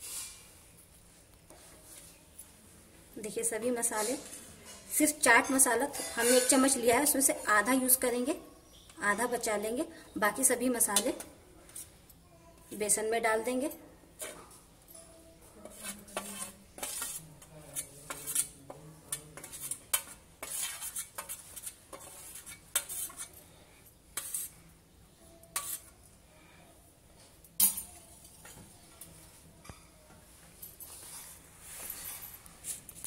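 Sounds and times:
spoon scraping steel plate: 4.0s - 7.7s, 15.6s - 23.4s, 24.2s - 24.6s, 25.5s - 25.9s.

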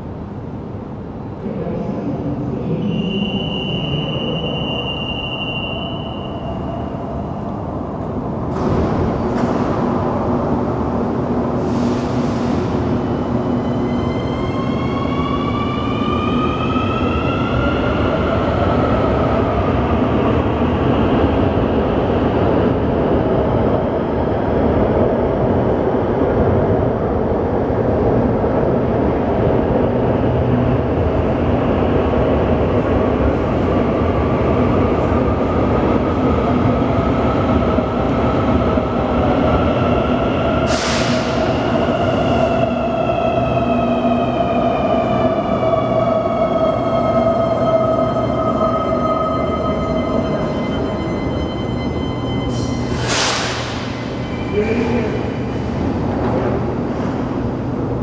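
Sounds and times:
rail rumble: 18.1s - 58.0s.

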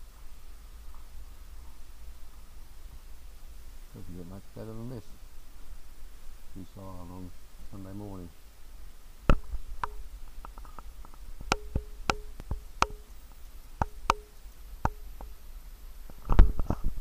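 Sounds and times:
sharp knocks with hollow ring: 11.4s - 13.2s, 13.8s - 15.3s.

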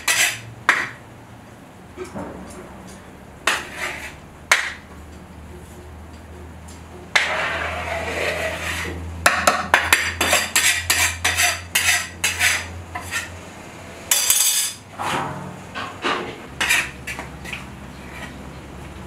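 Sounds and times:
metal bowl scraping and knocking: 14.1s - 18.4s.

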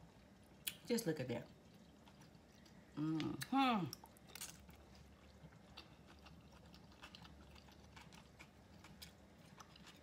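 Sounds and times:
person chewing food: 1.5s - 10.0s.

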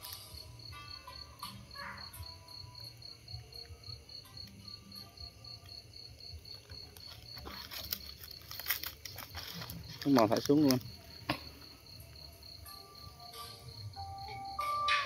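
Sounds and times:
insects chirping: 0.0s - 15.0s
clicks and rustles: 6.5s - 11.6s.

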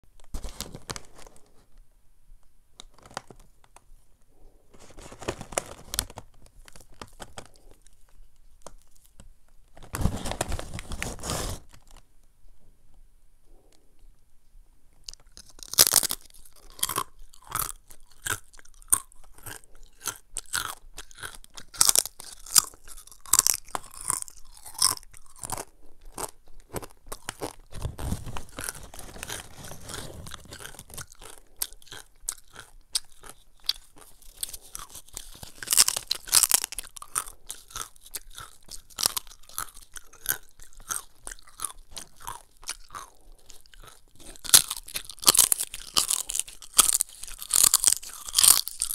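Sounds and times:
crunching chips: 15.1s - 48.9s.

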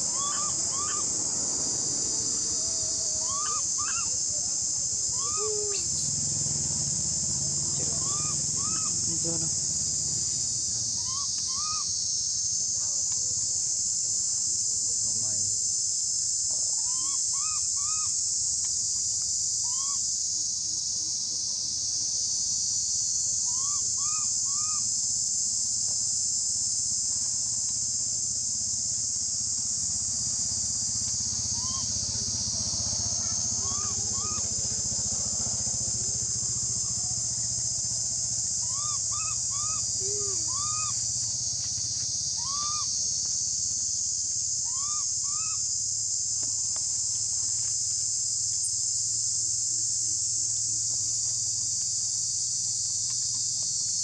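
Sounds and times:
high-pitched insect chorus: 0.0s - 54.0s
short chirping calls: 0.1s - 1.1s.

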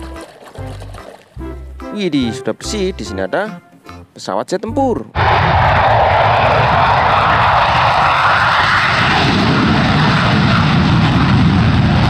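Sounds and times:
jet engine at full afterburner: 5.2s - 12.0s.

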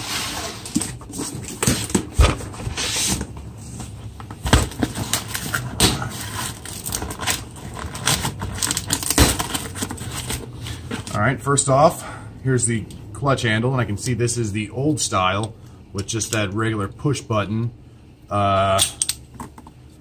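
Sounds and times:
cardboard rubbing and scraping: 0.0s - 3.8s.

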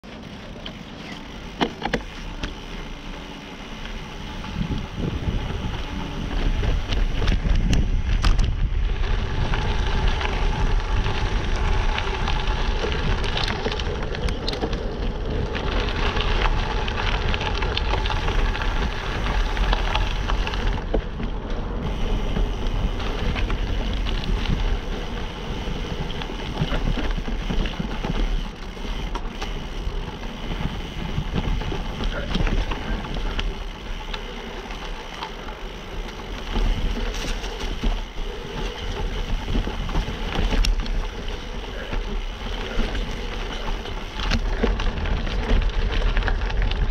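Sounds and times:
bike rattling and ticking: 0.0s - 46.9s
tyres crunching over gravel: 0.0s - 46.9s
wind buffeting microphone: 4.0s - 46.9s.

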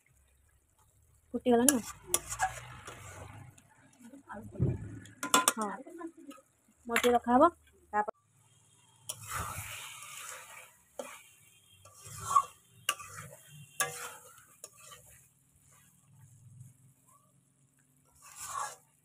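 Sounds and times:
spatula stirring and scraping: 0.1s - 7.2s, 8.3s - 19.0s
spatula clinking on pan: 11.8s - 15.1s.

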